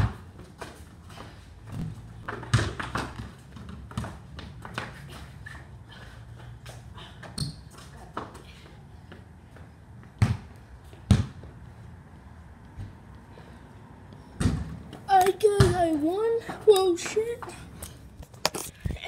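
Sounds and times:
basketball bouncing on concrete: 0:00.0 - 0:00.8, 0:01.7 - 0:05.0, 0:10.0 - 0:11.6, 0:14.4 - 0:17.6.

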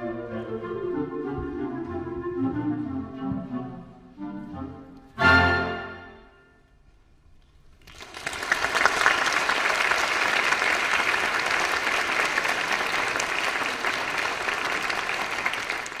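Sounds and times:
audience applauding: 0:07.7 - 0:16.0.

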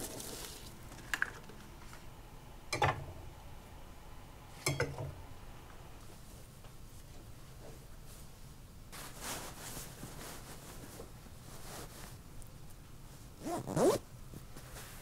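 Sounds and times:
fabric rustling: 0:08.9 - 0:12.3, 0:13.4 - 0:15.0
zipper pulled: 0:13.4 - 0:14.0.

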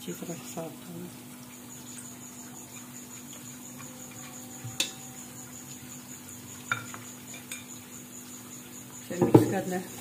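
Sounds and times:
onions frying in a pot: 0:00.0 - 0:10.0
spoon clinking against pot: 0:06.7 - 0:07.7.

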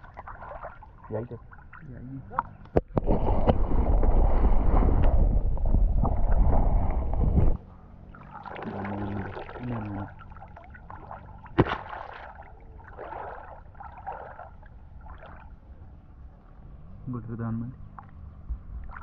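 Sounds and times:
sharp water splash: 0:00.0 - 0:01.8, 0:08.1 - 0:15.5
shallow water sloshing: 0:00.0 - 0:15.9, 0:17.9 - 0:19.0
muffled underwater rumble: 0:00.0 - 0:19.0.

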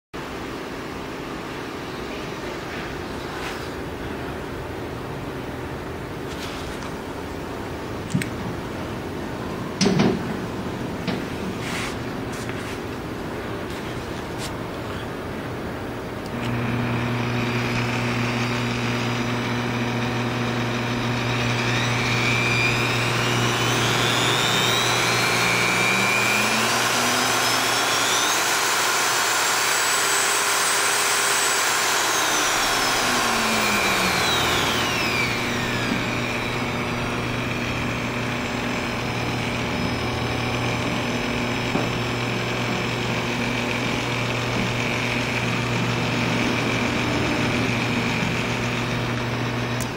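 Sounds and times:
drill press motor whine: 0:16.0 - 0:49.9
steady low hum: 0:32.4 - 0:49.9.

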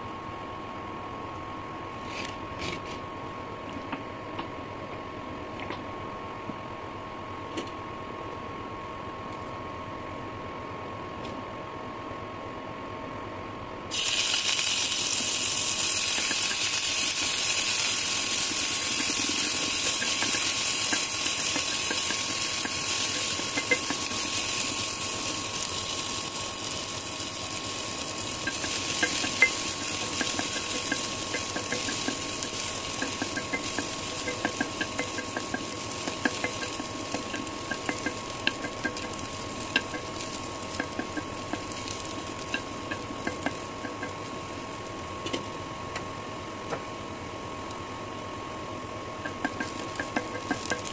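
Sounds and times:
onions sizzling in hot oil: 0:13.9 - 0:50.9.

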